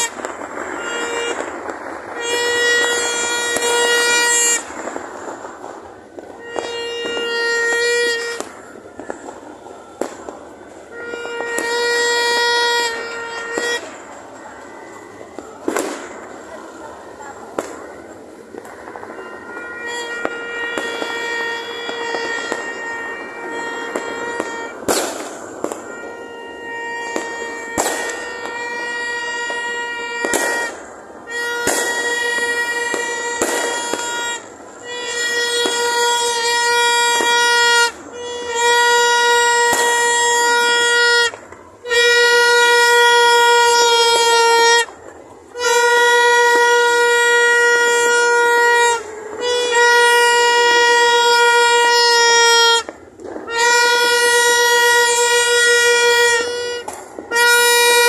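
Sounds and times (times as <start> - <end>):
firework bangs: 0.0 - 58.0
horn long blasts: 0.0 - 58.0.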